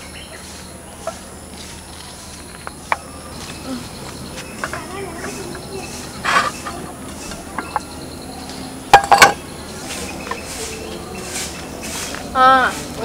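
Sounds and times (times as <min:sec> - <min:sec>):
ceramic plates clinking: 0:04.5 - 0:08.0, 0:08.7 - 0:12.0
plate scraping: 0:04.6 - 0:07.9, 0:08.9 - 0:12.2.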